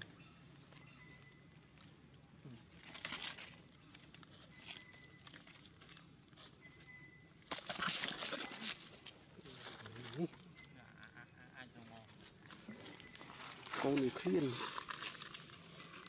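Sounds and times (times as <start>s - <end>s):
drink carton crinkling: 7.5s - 10.2s, 12.1s - 16.0s.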